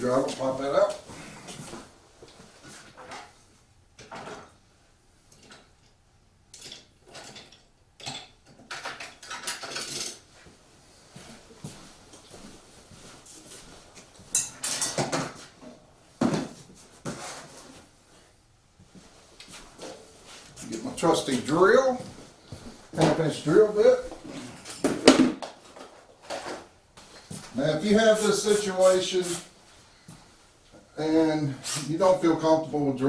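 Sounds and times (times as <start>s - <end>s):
hard objects clinking and clattering: 6.6s - 10.2s.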